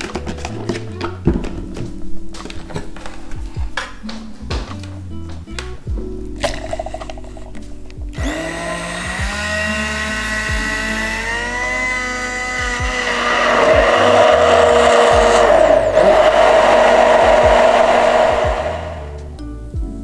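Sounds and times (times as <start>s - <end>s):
hand blender motor whining: 8.2s - 19.2s.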